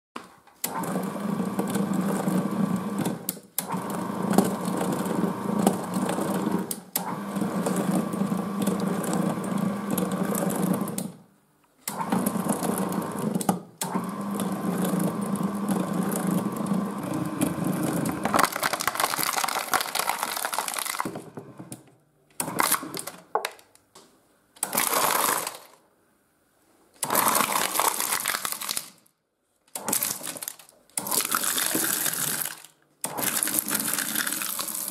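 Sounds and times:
shredder motor humming and whining: 0.6 - 11.1, 11.9 - 19.4, 33.1 - 34.9
plastic film crackling and tearing: 18.2 - 21.2, 27.1 - 29.0, 29.9 - 34.9.

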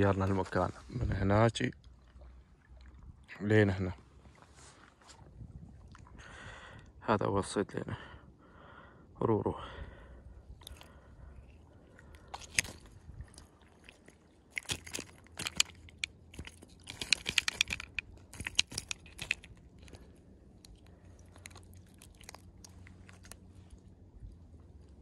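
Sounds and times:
handling clicks and crackles: 12.2 - 13.5, 14.5 - 23.4.

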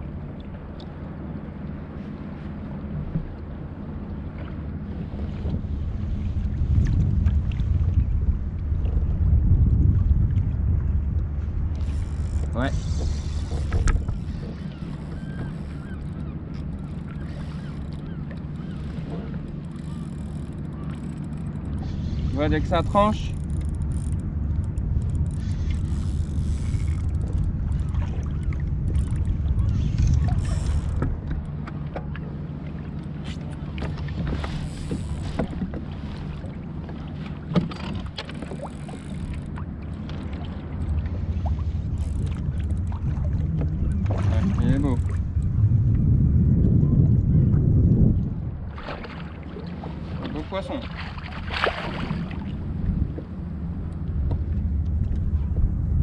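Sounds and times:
wind and water noise: 0.0 - 56.0
faint short squeaks: 11.8 - 22.2, 29.6 - 31.0.

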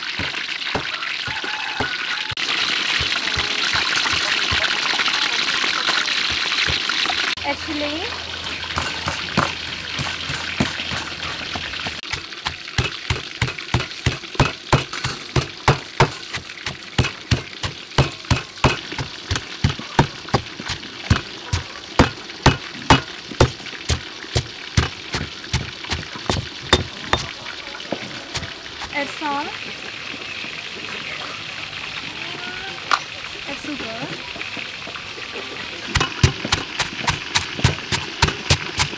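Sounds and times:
pestle pounding in stone mortar: 0.0 - 2.0, 2.9 - 5.0, 5.9 - 7.2, 8.4 - 29.2, 35.9 - 38.9.

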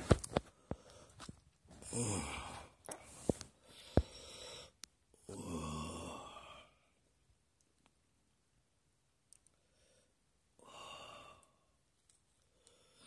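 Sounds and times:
man sighing: 1.8 - 2.8.

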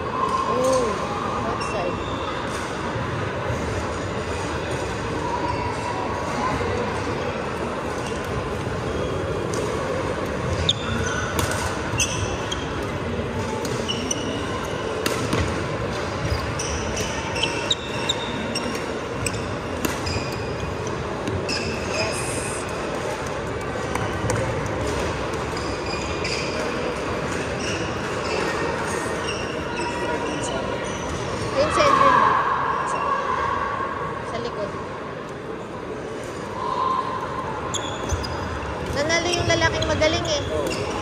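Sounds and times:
crowd chatter: 0.0 - 41.0
sneakers squeaking on wooden court: 10.4 - 22.6, 23.9 - 32.0, 37.7 - 41.0.

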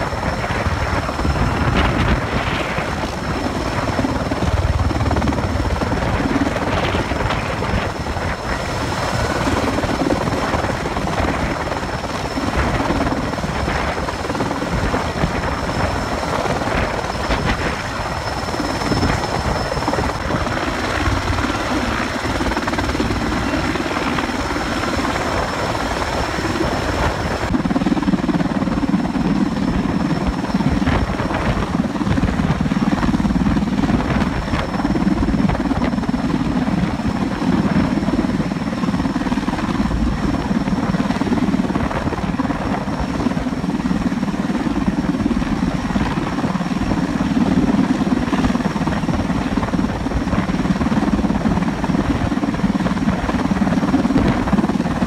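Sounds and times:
helicopter rotor: 0.0 - 55.0
high turbine whine: 0.0 - 55.0.

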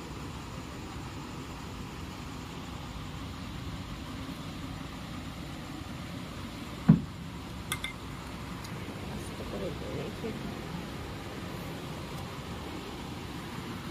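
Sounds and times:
low background rumble: 0.0 - 13.9
dull thump: 6.8 - 7.2.

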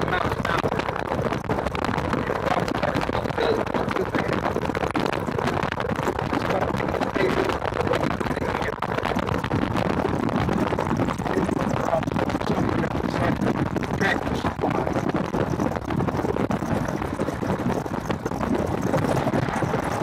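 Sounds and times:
golf cart driving: 0.0 - 20.0
wind buffeting microphone: 0.0 - 20.0.

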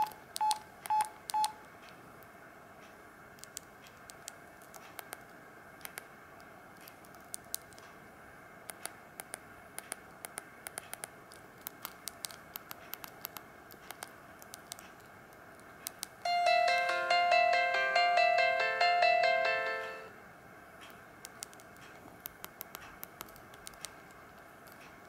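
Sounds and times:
phone keypad buttons clicking: 0.0 - 1.6.

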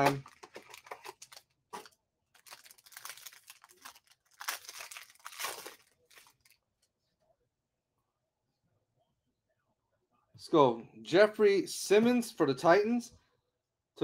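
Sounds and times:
foil wrapper tearing and crinkling: 0.0 - 6.6.

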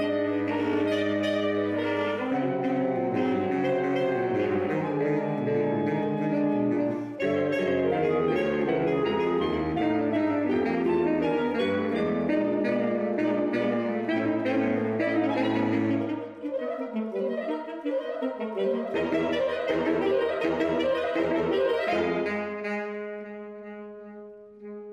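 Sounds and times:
saxophone quartet playing: 0.0 - 24.9.

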